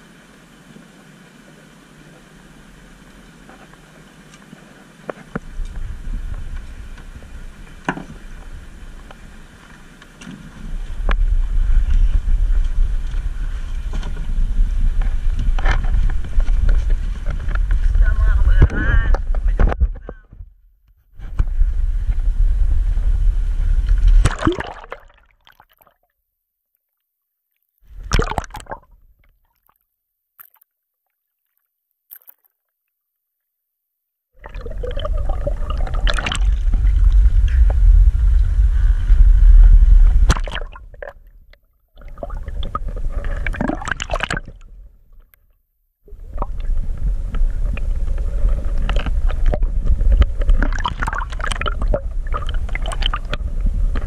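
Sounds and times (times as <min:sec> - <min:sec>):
water sloshing and gurgling: 0:04.4 - 0:20.4, 0:21.2 - 0:26.1, 0:27.8 - 0:29.8, 0:30.4 - 0:32.7, 0:34.4 - 0:54.0
heavy low rumble: 0:05.4 - 0:24.5, 0:34.4 - 0:43.7, 0:46.1 - 0:54.0.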